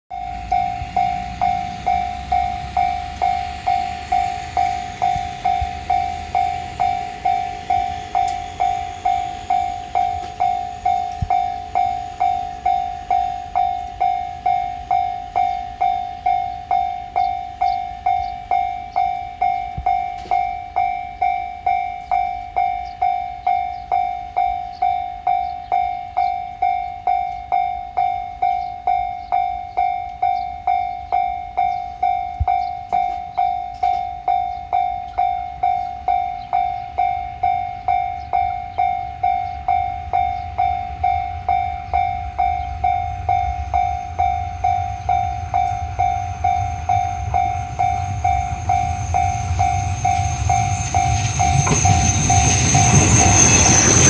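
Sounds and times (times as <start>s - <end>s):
railroad crossing bell: 0.1s - 54.0s.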